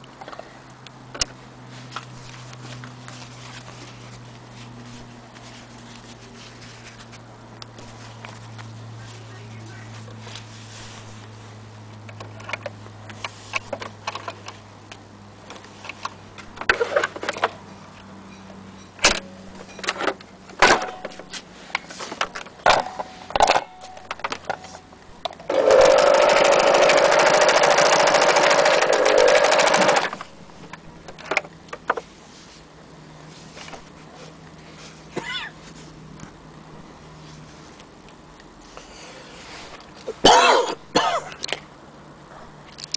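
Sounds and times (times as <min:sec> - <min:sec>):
electric sewing machine running: 0:25.5 - 0:30.3.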